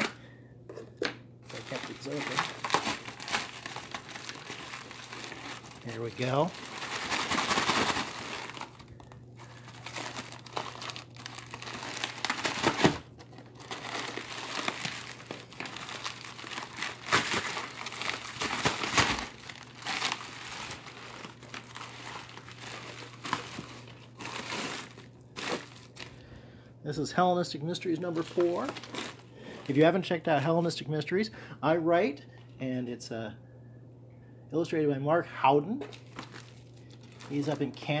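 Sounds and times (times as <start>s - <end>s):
packing paper rustling: 1.5s - 26.3s, 27.8s - 30.0s, 35.9s - 38.0s.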